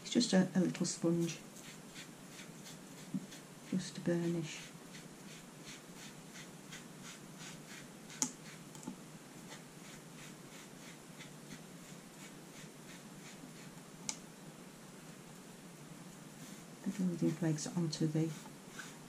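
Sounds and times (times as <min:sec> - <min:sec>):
sponge rubbing strokes: 0:01.0 - 0:08.7, 0:09.4 - 0:13.8, 0:16.3 - 0:19.0.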